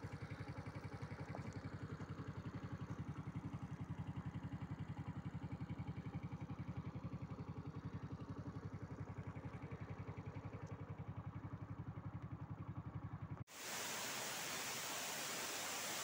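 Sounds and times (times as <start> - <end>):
small motorcycle engine running: 0.0 - 16.0
waterfall rushing: 13.5 - 16.0.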